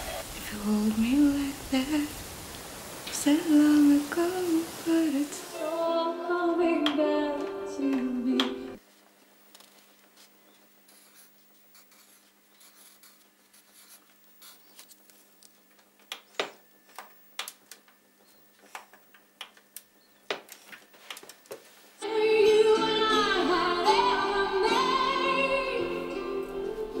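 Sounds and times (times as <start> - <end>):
song with singing voice: 3.0 - 8.8, 22.0 - 27.0
pen scratching on paper: 10.9 - 14.8.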